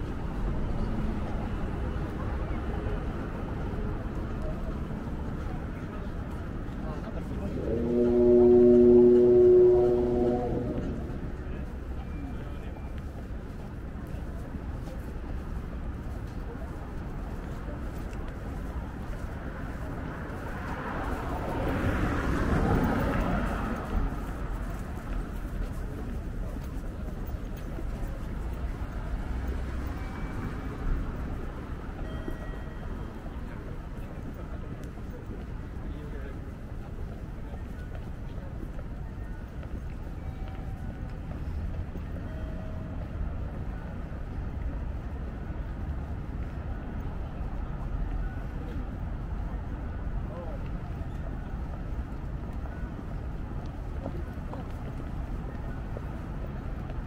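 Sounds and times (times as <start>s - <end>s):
background traffic: 0.0s - 57.0s
passing vehicles rumble: 0.0s - 57.0s
vehicle passing: 7.2s - 11.9s.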